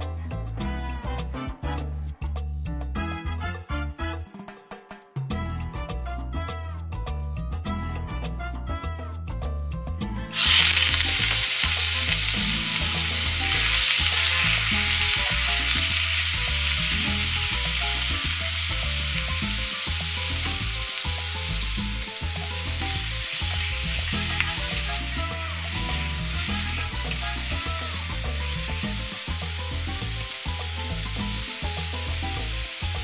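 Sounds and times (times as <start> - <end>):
meat sizzling in hot oil: 10.3 - 33.0.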